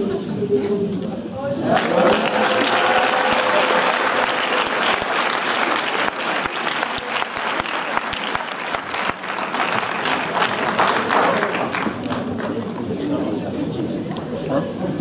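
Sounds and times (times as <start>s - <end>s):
audience applauding: 1.7s - 13.0s.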